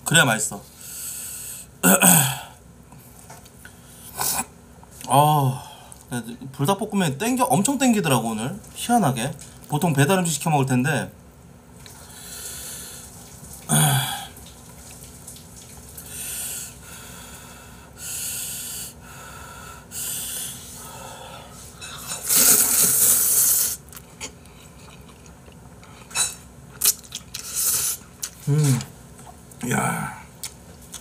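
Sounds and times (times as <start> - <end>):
person slurping noodles: 22.2 - 23.8, 27.4 - 28.9.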